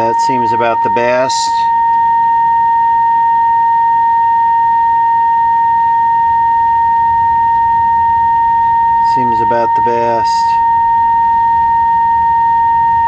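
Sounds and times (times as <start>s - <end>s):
high-pitched test tone: 0.0s - 13.0s.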